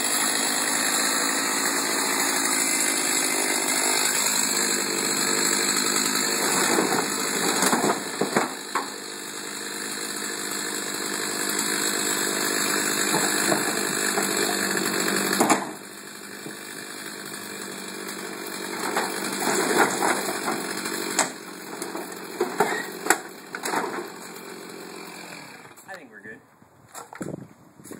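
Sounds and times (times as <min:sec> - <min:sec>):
chainsaw engine running: 0:00.0 - 0:26.3
wood cracking and clattering: 0:05.2 - 0:09.0, 0:12.8 - 0:15.8, 0:18.6 - 0:24.4.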